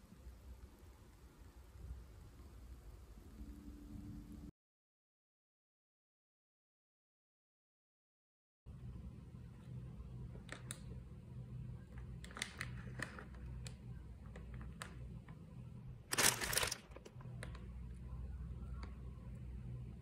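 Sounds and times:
low steady hum: 0:00.0 - 0:04.5, 0:08.7 - 0:20.0
plastic packet crinkling: 0:12.2 - 0:15.0, 0:16.1 - 0:17.6.

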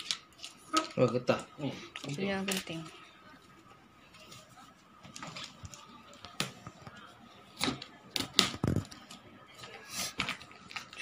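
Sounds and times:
plastic crinkling: 0:00.0 - 0:03.0.

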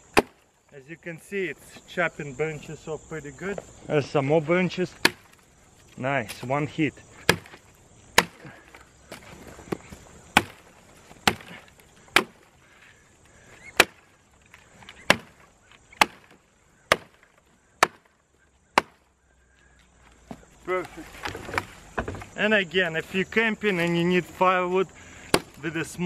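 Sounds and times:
hatchet chopping twigs: 0:00.0 - 0:00.5, 0:05.0 - 0:05.5, 0:07.2 - 0:19.1, 0:25.2 - 0:25.8.

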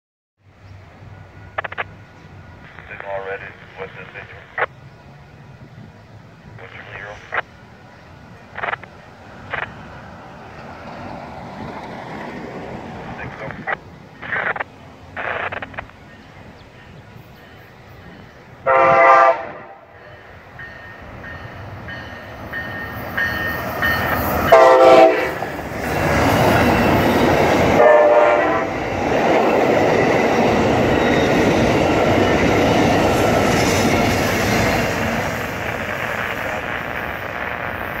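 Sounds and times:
train horn blasts: 0:18.6 - 0:20.2, 0:24.4 - 0:25.5, 0:27.7 - 0:28.7.

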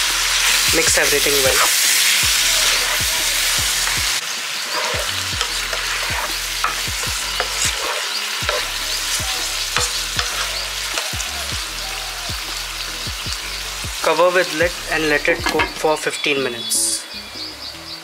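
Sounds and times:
curry sizzling in hot oil: 0:00.0 - 0:18.0
utensil scraping pan: 0:02.6 - 0:11.1, 0:15.4 - 0:15.9.

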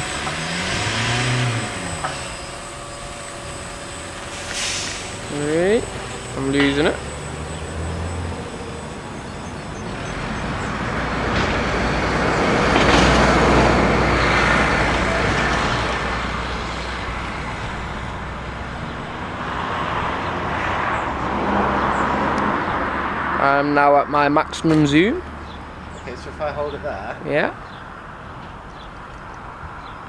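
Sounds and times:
steady low hum: 0:00.0 - 0:11.2
vehicles passing: 0:00.0 - 0:30.0.

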